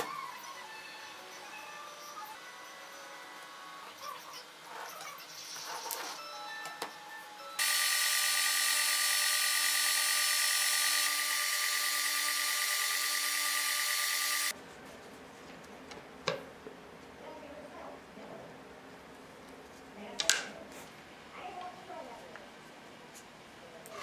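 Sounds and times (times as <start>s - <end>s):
belt sander humming: 7.6s - 14.5s.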